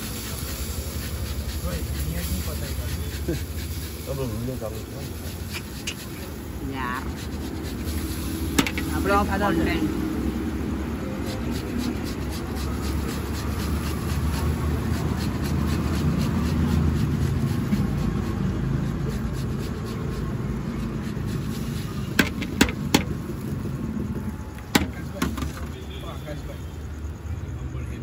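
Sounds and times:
sharp knocks: 0:08.6 - 0:08.9, 0:22.2 - 0:23.2, 0:24.7 - 0:25.7
tomato scraping on grater: 0:11.0 - 0:22.8.

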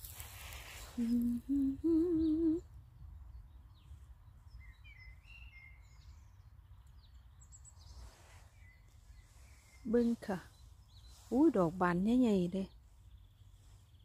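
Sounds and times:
faint bird chirps: 0:00.8 - 0:02.7, 0:03.3 - 0:14.0
woman humming: 0:01.0 - 0:02.7.

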